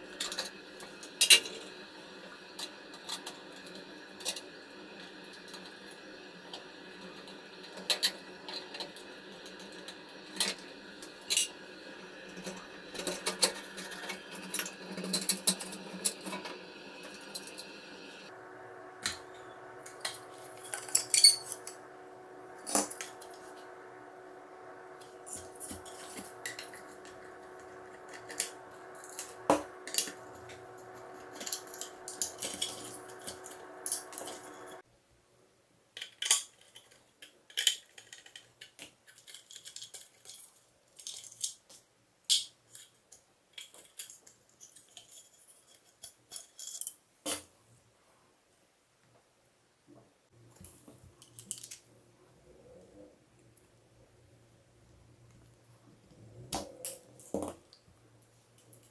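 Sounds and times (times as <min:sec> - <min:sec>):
steady hum: 0:00.0 - 0:34.8.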